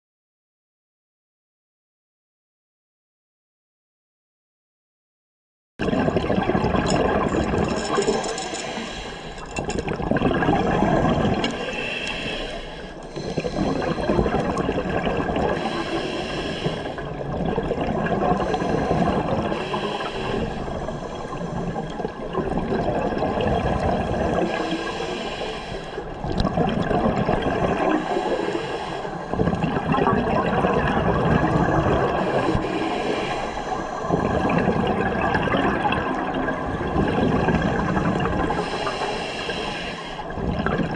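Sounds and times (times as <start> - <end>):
exhaled bubbles rushing: 5.8 - 8.5, 9.5 - 11.8, 13.1 - 16.0, 16.8 - 25.0, 26.0 - 28.5, 29.2 - 32.9, 33.7 - 39.0, 40.3 - 40.9.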